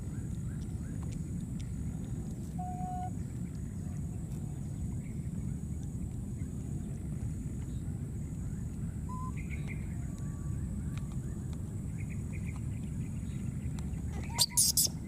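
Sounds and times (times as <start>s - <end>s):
low outdoor rumble: 0.0s - 15.0s
faint short chirps: 14.2s - 15.0s.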